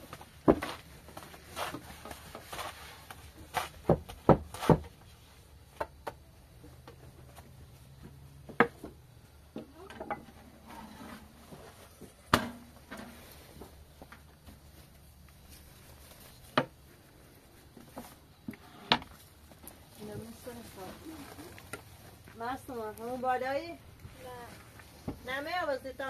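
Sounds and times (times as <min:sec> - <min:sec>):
objects knocking and clattering: 0:05.7 - 0:11.4, 0:12.0 - 0:14.4.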